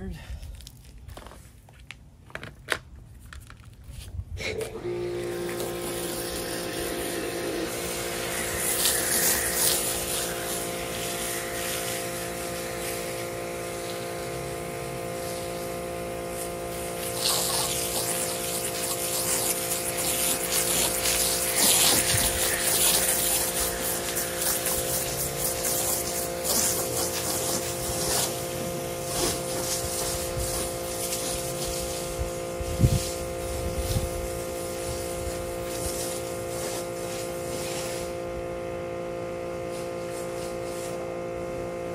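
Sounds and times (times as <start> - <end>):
pressure washer humming: 4.4 - 41.9
water and foam hissing: 5.3 - 38.2.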